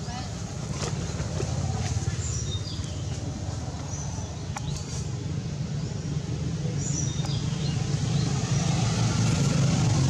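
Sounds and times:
vehicle engine rumbling: 0.0 - 10.0.

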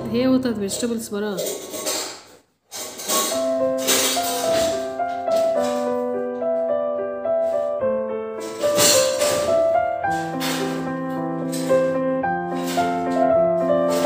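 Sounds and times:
held keyboard chords: 3.2 - 14.0.

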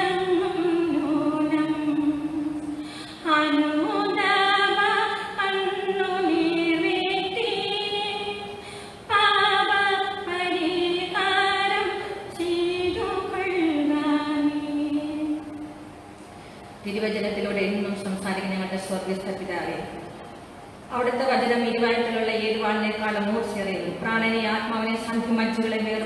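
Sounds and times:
woman singing a hymn: 0.0 - 15.8.

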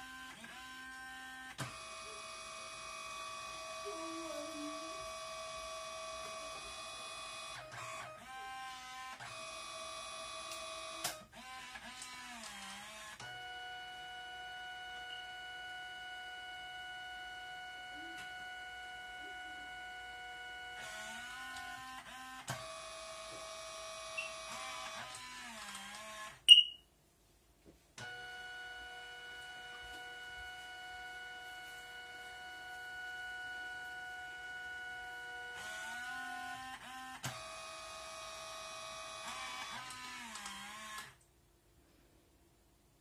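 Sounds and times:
printer motor whine: 0.0 - 26.4, 28.0 - 41.2
loud high blip: 26.5 - 26.8
light printer clicks: 39.2 - 41.2.

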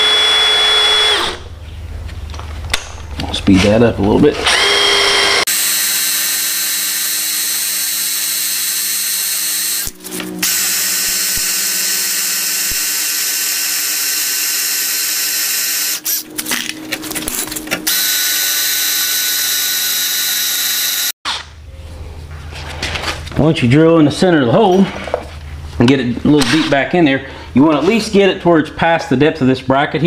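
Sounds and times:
cordless drill whining: 0.0 - 1.4, 4.4 - 16.2, 17.9 - 21.2.

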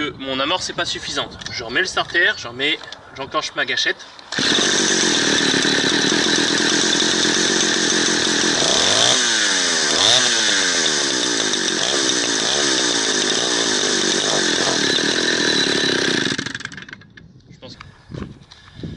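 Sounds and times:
chainsaw engine running unevenly: 4.3 - 17.1.

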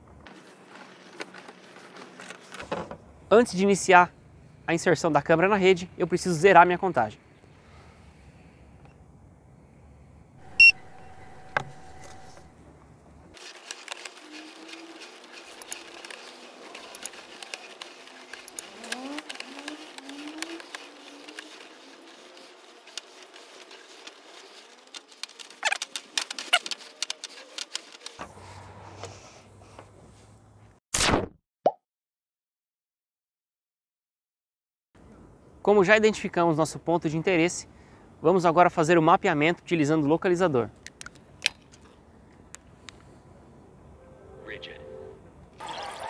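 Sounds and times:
short electronic beep: 10.4 - 12.5
cable scraping in pipe: 13.4 - 29.9.

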